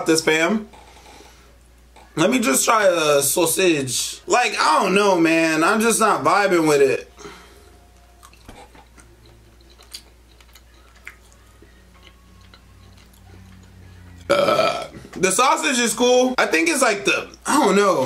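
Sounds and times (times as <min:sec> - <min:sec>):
faint low hum: 0:00.0 - 0:18.0
person chewing food: 0:07.9 - 0:15.1.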